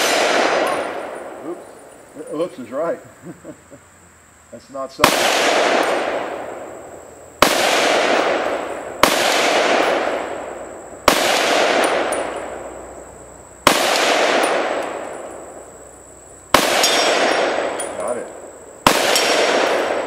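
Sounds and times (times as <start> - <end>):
gunshots: 0.0 - 1.6, 5.0 - 6.8, 7.4 - 12.8, 13.6 - 15.5, 16.5 - 20.0
rolling echo: 0.0 - 2.7, 5.0 - 20.0.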